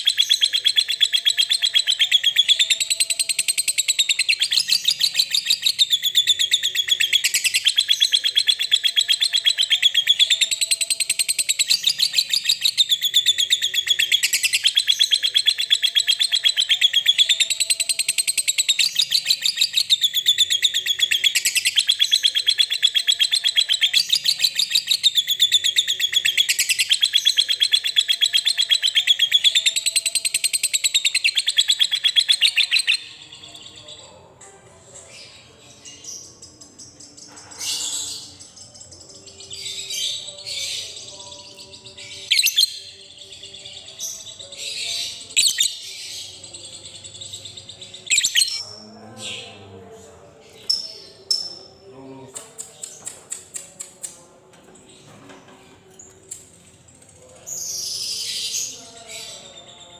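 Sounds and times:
lovebird rapid high chatter: 44.6 - 48.6.

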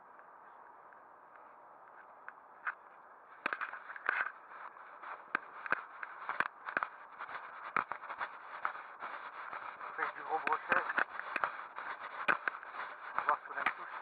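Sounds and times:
camera handling scraping and knocking: 3.4 - 4.4.

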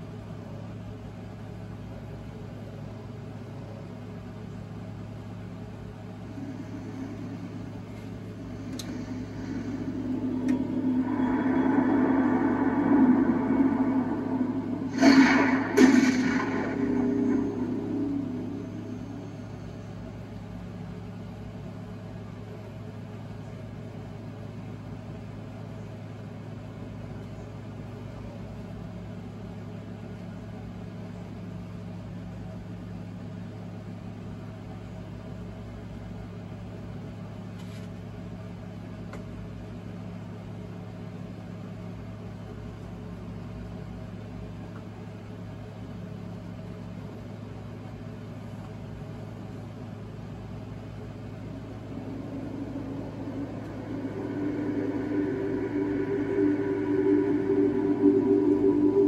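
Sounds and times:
low electrical hum: 0.0 - 26.3, 42.0 - 59.0.

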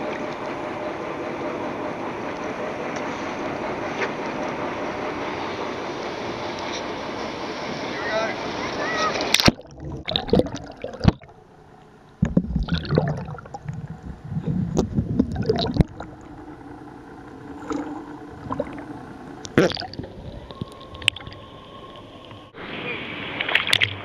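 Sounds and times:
muffled underwater hush: 7.6 - 24.0
sea water splashing and gurgling: 7.7 - 24.0
choppy low rumbles: 9.3 - 22.6.

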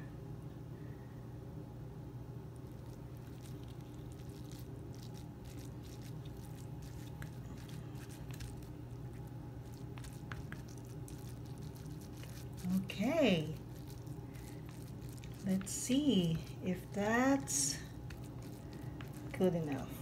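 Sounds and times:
steady low hum: 0.0 - 20.0
soft squishes and small clicks: 2.5 - 20.0.

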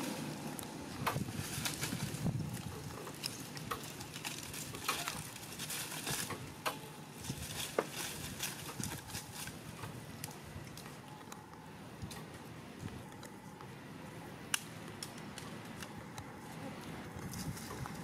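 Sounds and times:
low outdoor background: 0.0 - 18.0.

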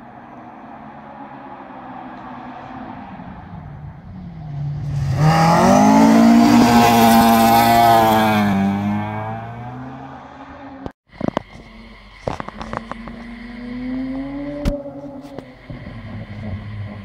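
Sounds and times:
rally car engine revving past: 4.2 - 10.8.

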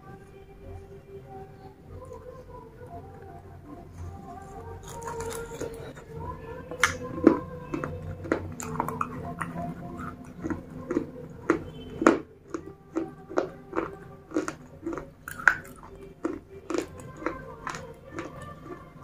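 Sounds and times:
crunchy chewing: 3.9 - 19.0.

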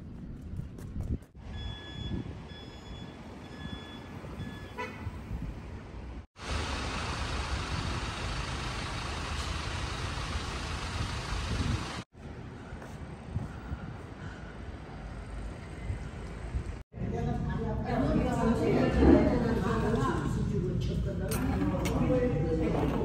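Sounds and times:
street traffic: 0.2 - 16.8, 19.6 - 23.0
electronic beeper long beeps: 1.5 - 4.8.

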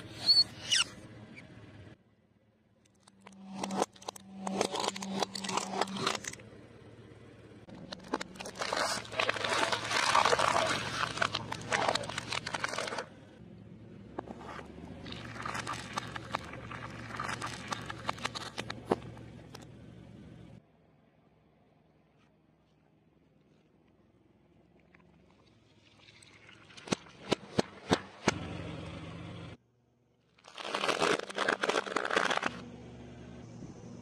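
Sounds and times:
tyre crushing plastic bottles: 7.7 - 13.1, 30.4 - 32.6.

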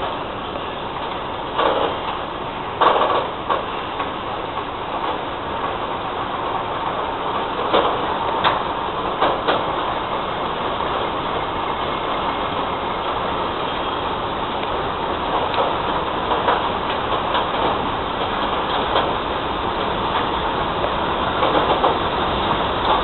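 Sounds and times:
train wheels rumbling on rail: 0.0 - 23.0
wheels clacking over rail joints: 0.0 - 23.0.

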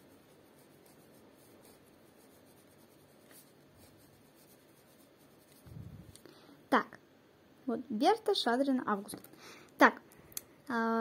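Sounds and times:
pen scratching on paper: 0.0 - 5.9.

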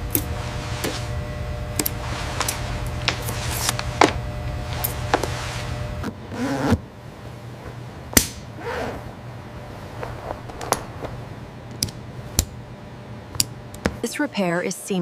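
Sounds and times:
sharp snap: 8.2 - 8.5.

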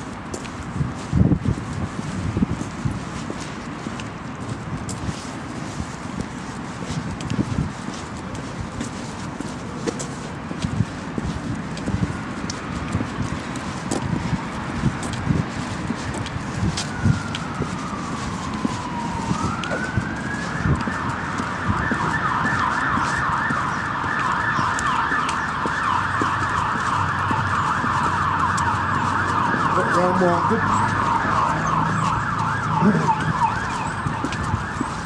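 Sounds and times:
emergency siren yelping: 15.8 - 35.0.

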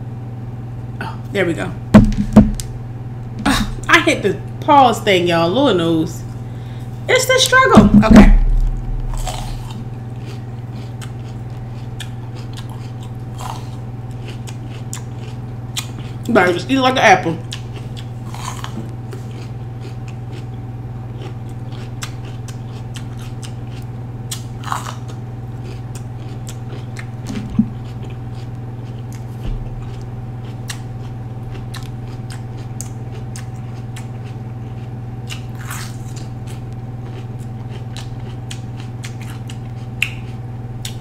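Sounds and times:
low hum: 0.0 - 4.8, 5.5 - 14.5, 26.1 - 34.0
crunching and chewing pepper: 8.4 - 16.4, 17.3 - 41.0.

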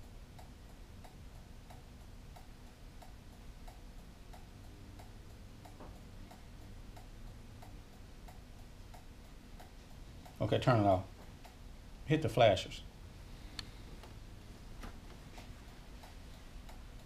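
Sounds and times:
turn-signal flasher ticking: 0.0 - 12.0.

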